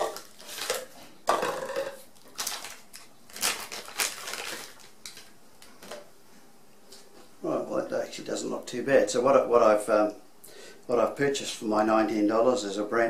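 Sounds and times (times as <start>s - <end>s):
plastic wrapping crinkling: 0.0s - 6.0s.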